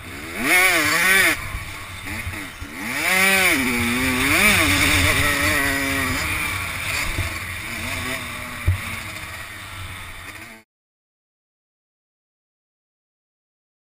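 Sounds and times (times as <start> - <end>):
motocross bike engine revving: 0.0 - 10.6.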